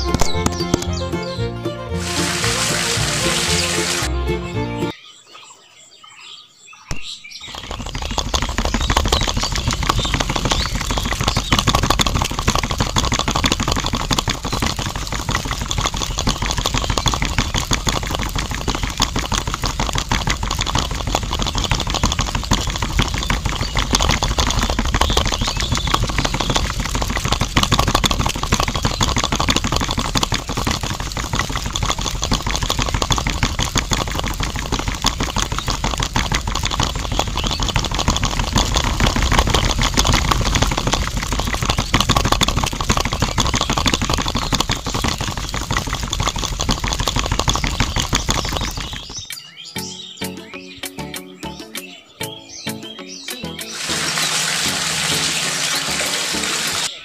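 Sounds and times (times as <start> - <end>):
small motor running: 2.0 - 4.1, 7.5 - 49.2, 53.7 - 56.9
gears rattling: 7.4 - 49.4.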